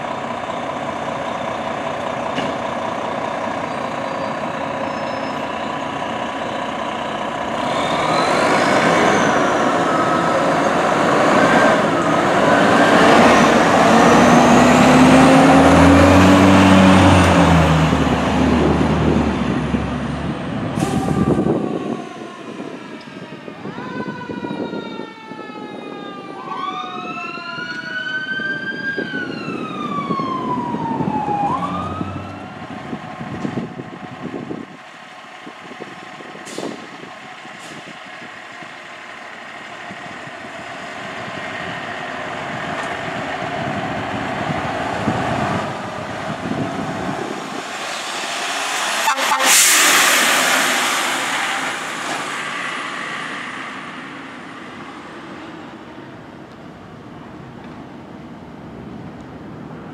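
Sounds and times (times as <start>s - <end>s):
diesel engine running: 0.0s - 22.8s, 32.5s - 58.2s
fire engine siren wailing: 0.0s - 57.5s
loud rushing burst: 43.8s - 56.4s.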